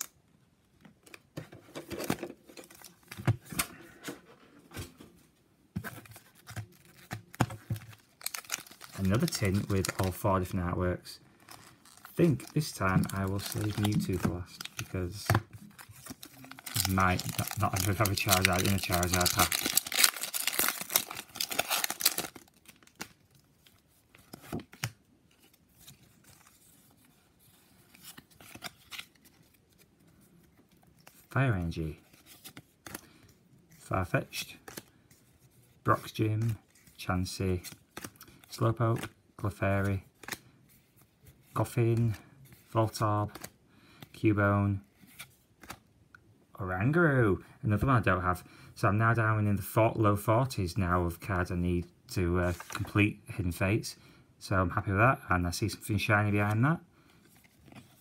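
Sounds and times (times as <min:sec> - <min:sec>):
cards rustling and clicking: 0:00.8 - 0:05.2, 0:05.8 - 0:10.6, 0:11.4 - 0:44.2, 0:44.9 - 0:45.9, 0:52.4 - 0:53.0, 0:56.4 - 0:58.0
foil packs crinkling: 0:06.2 - 0:10.3, 0:11.4 - 0:23.4.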